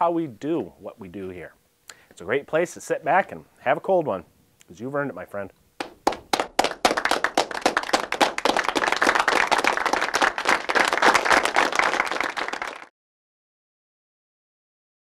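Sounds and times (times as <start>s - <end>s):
crowd applauding: 5.8s - 12.9s.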